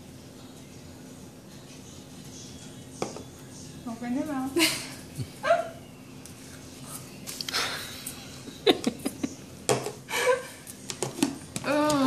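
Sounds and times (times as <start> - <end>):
person humming: 11.6 - 12.0.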